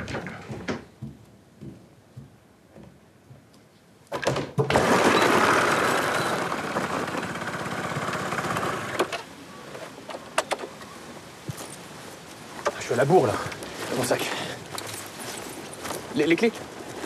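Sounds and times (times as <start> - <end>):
motor scooter engine buzzing: 4.7 - 9.1.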